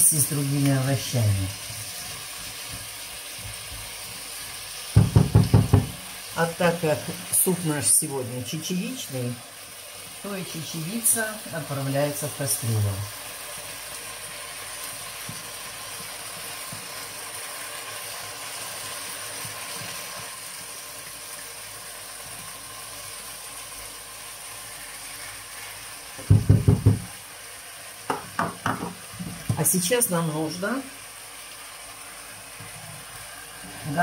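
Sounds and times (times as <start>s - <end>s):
vegetables sizzling in oil: 0.0s - 34.0s
loud knocks: 5.0s - 6.0s, 26.2s - 27.1s.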